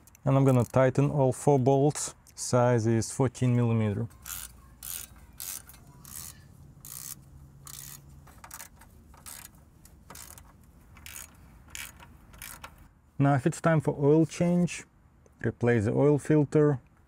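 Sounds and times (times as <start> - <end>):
socket ratchet clicking: 4.2 - 12.9.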